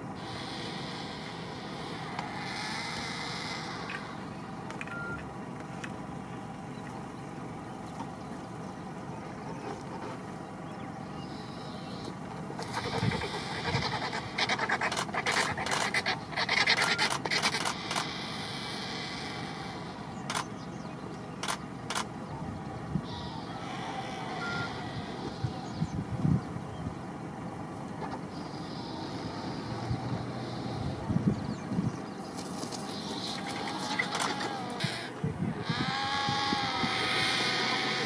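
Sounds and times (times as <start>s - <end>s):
steady background rumble: 0.0s - 38.0s
vultures scuffling and wing-flapping: 12.6s - 18.1s, 32.2s - 35.1s.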